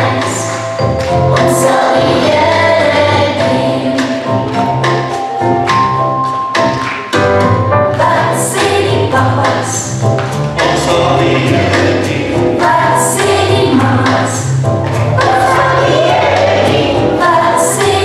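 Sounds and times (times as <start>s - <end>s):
choir singing: 1.3s - 4.4s, 10.6s - 14.5s, 15.2s - 18.0s.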